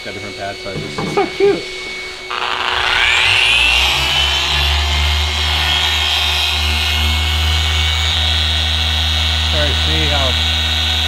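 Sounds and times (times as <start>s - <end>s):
electric polisher whining: 0.1s - 11.0s
low hum: 1.7s - 9.5s.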